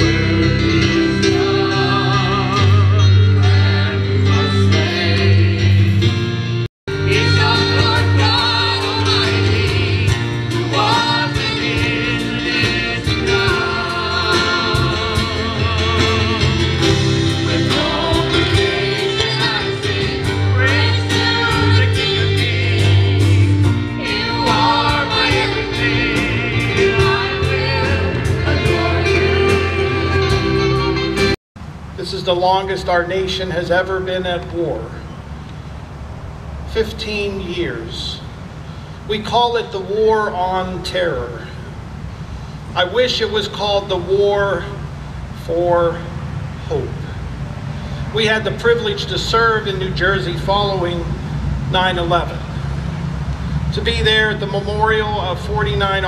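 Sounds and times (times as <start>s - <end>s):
group singing gospel song: 0.0s - 6.2s, 6.9s - 31.4s
steady bass line: 0.0s - 31.4s.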